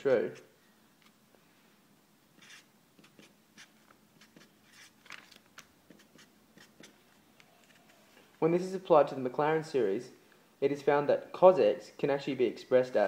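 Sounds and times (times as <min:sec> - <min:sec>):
marker scratching on paper: 0:02.4 - 0:05.1, 0:05.9 - 0:08.0.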